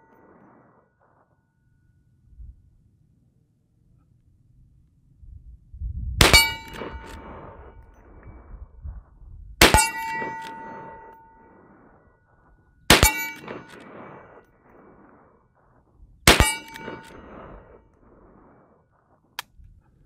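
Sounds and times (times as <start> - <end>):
ringing metallic clang: 6.2 - 7.4, 9.6 - 14.0, 16.3 - 17.4
rifle shots: 6.2 - 8.0, 9.6 - 12.0, 12.9 - 15.6, 16.2 - 18.8.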